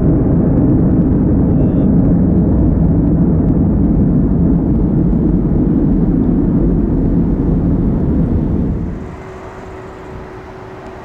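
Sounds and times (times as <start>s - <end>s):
jet engines deep rumble: 0.0s - 11.0s.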